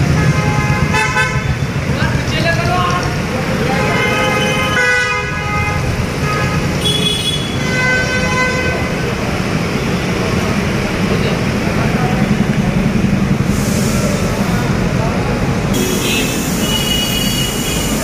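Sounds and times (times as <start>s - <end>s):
car horns honking: 0.0s - 1.8s, 3.6s - 9.2s, 15.8s - 18.0s
vehicle engines rumbling: 0.0s - 18.0s.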